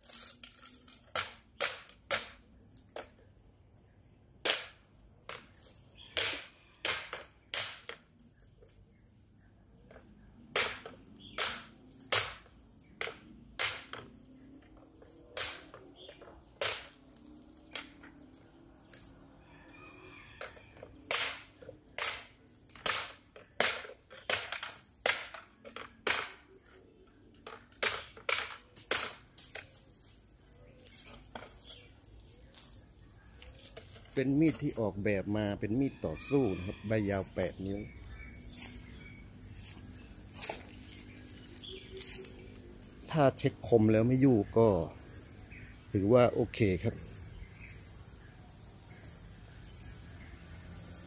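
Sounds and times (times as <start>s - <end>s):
knife chopping bamboo: 6.2s - 8.0s, 10.6s - 12.4s, 15.4s - 15.8s, 21.1s - 25.4s.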